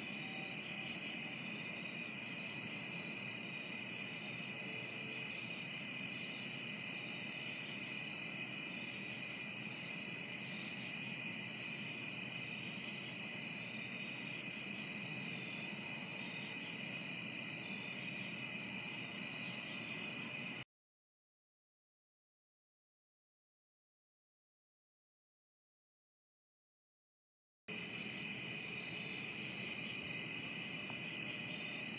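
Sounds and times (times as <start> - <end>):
crickets trilling: 0.0 - 20.6, 27.7 - 31.9.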